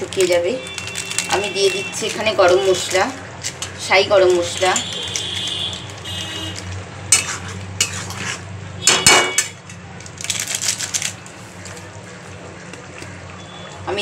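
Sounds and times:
spice packet crinkling: 0:00.0 - 0:06.8, 0:10.0 - 0:12.4
spatula scraping metal pot: 0:06.3 - 0:08.5.

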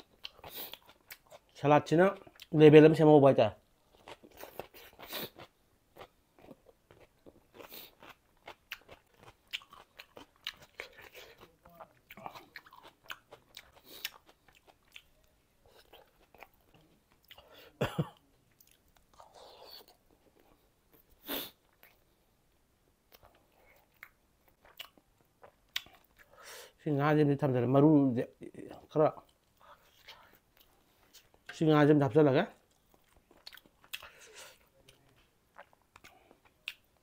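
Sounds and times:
person chewing and biting food: 0:03.9 - 0:17.5, 0:23.1 - 0:26.4, 0:32.6 - 0:37.0.

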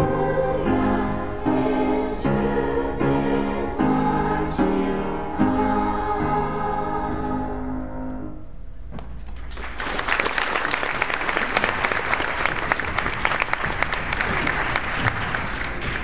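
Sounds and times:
crowd of children applauding: 0:09.4 - 0:16.0.

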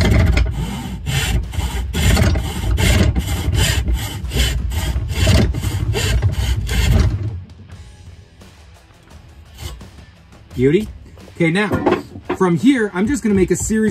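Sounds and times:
hand saw cutting wood: 0:00.0 - 0:07.4, 0:09.5 - 0:09.9.

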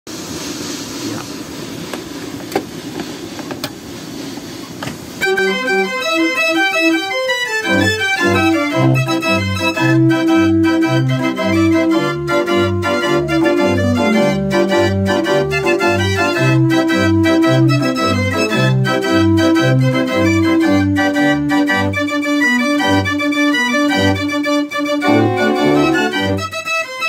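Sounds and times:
mechanical organ playing: 0:05.2 - 0:27.0.

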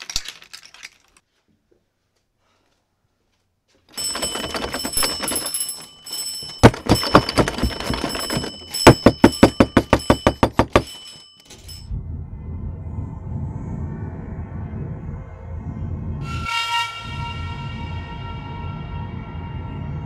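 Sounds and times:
mechanical bell ringing: 0:03.9 - 0:11.9
low rumble: 0:11.8 - 0:16.5.

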